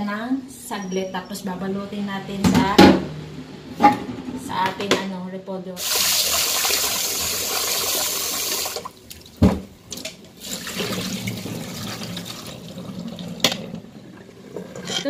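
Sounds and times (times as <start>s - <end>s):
tap water running into pan: 5.8s - 9.0s, 10.3s - 13.8s
water draining through strainer: 5.8s - 15.0s.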